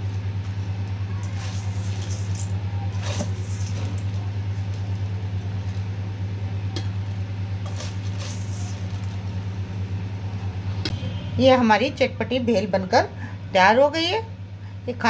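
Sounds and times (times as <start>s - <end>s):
rustling of puffed rice: 0.0s - 6.3s, 7.0s - 10.0s
steady low hum: 0.0s - 15.0s
spoon scraping steel bowl: 7.6s - 9.0s.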